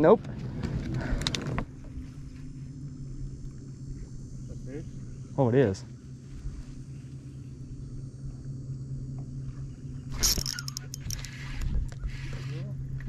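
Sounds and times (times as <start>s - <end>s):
steady low hum: 0.0s - 13.0s
sharp clicks: 10.2s - 11.4s.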